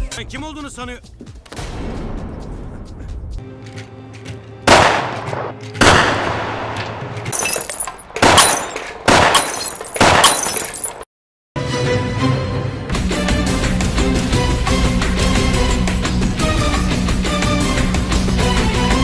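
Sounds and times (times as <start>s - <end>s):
gunshots with echo: 4.7s - 7.0s, 8.1s - 10.4s
dramatic background music: 11.6s - 19.0s.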